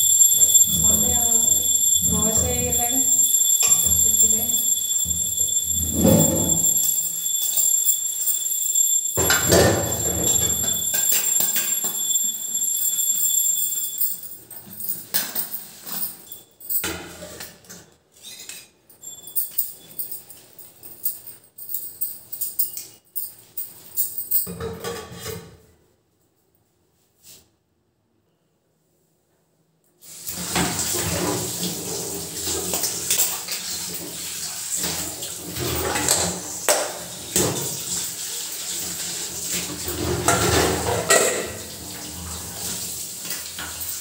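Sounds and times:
steady high-pitched tone: 0:00.0 - 0:13.9
metal dishes and pots clattering: 0:09.2 - 0:12.1, 0:24.4 - 0:25.7, 0:34.8 - 0:44.0.

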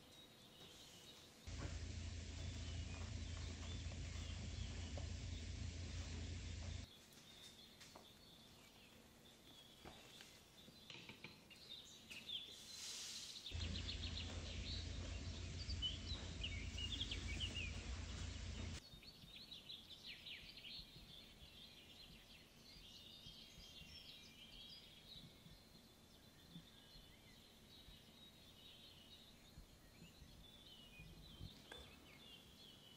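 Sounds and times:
faint birds chirping: 0:00.0 - 0:32.9
low rumbling noise: 0:01.5 - 0:06.9, 0:13.6 - 0:18.8.

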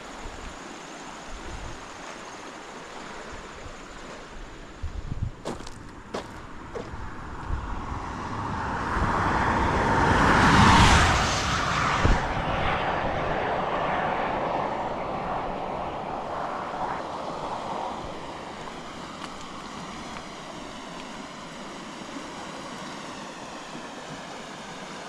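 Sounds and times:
vehicle passing on highway: 0:05.5 - 0:24.7.

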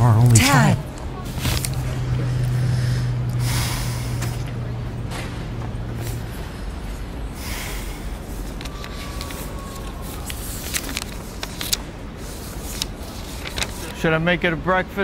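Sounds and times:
city street rumble: 0:00.0 - 0:15.0
distant traffic: 0:00.0 - 0:15.0
paper crackling: 0:08.4 - 0:14.1.

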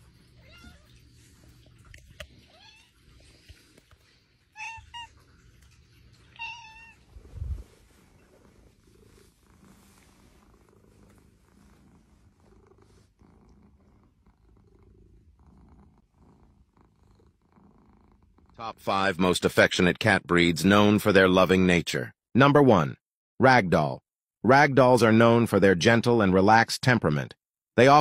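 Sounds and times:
cat purring: 0:00.0 - 0:18.7
cat meowing: 0:00.3 - 0:01.0, 0:02.3 - 0:03.0, 0:04.5 - 0:05.2, 0:06.3 - 0:07.1.

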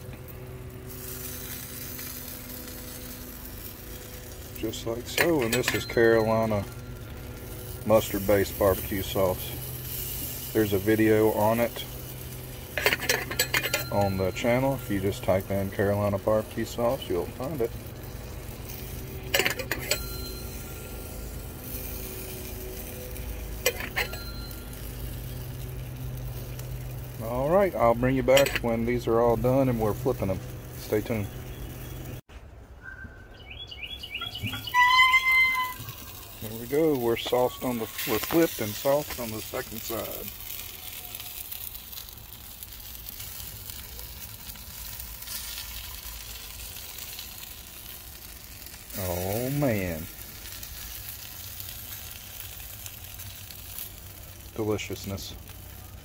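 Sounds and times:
chicken sizzling on a grill: 0:00.0 - 0:32.3, 0:33.5 - 0:56.0
brush clinking on metal cup: 0:04.7 - 0:09.4, 0:12.8 - 0:15.4, 0:18.7 - 0:22.2, 0:23.6 - 0:25.1, 0:28.3 - 0:28.8, 0:36.9 - 0:39.2.

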